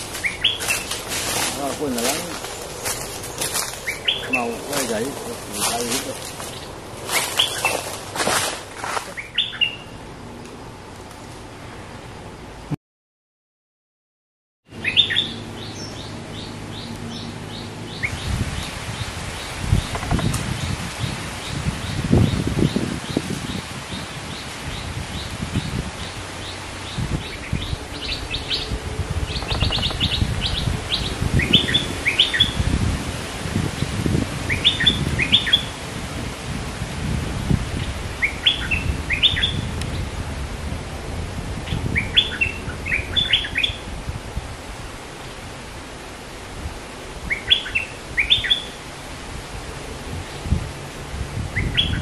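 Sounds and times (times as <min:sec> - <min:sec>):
bird chirping and whistling: 0:09.2 - 0:09.9, 0:14.8 - 0:15.9, 0:38.2 - 0:39.6, 0:51.6 - 0:52.0.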